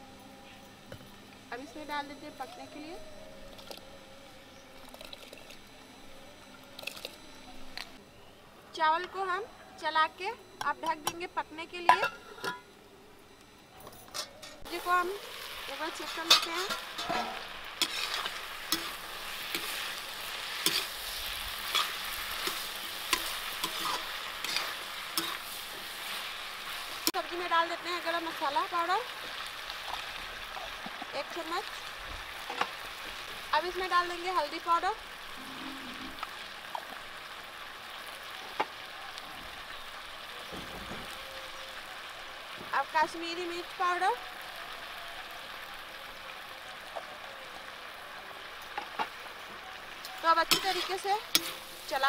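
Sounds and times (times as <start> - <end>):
vegetables sizzling: 0.6 - 8.0, 8.7 - 13.3, 14.2 - 52.0
metal ladle scraping a pan: 16.0 - 26.2, 50.5 - 51.9.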